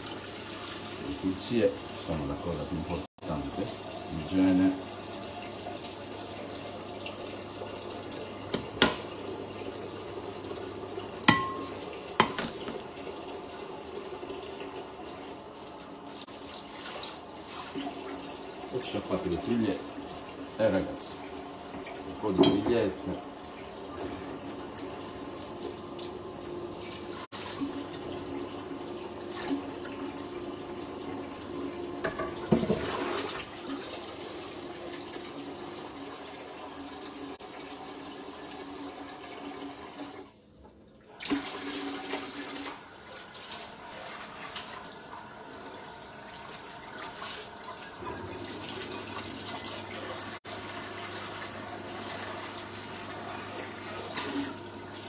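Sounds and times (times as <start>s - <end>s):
tap water running: 0.0s - 55.0s
crockery clinking: 11.3s - 12.5s.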